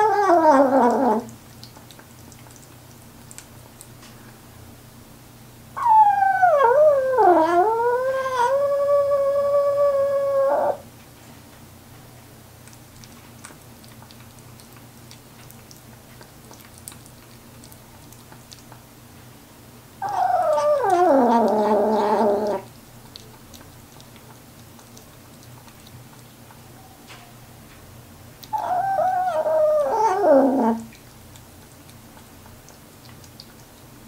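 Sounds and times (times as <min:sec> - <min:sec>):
faint eating clicks: 0:00.1 - 0:04.4, 0:12.5 - 0:19.4, 0:20.0 - 0:34.0
kitten warning yowl: 0:20.0 - 0:22.7, 0:28.5 - 0:30.8.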